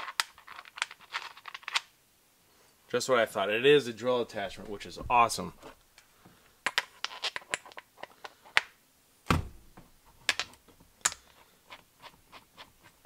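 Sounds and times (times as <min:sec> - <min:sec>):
heavy thump: 0:04.5 - 0:05.7, 0:09.3 - 0:09.9.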